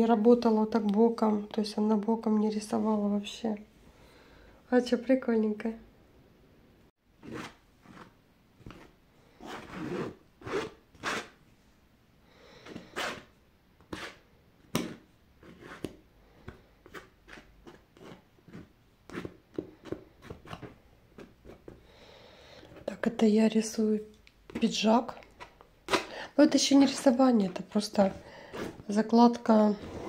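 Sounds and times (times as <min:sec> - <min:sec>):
palette knife scraping canvas: 0:07.2 - 0:11.4, 0:12.6 - 0:13.3, 0:13.9 - 0:14.2, 0:14.8 - 0:16.0, 0:16.8 - 0:20.8, 0:26.7 - 0:29.1, 0:29.7 - 0:30.0.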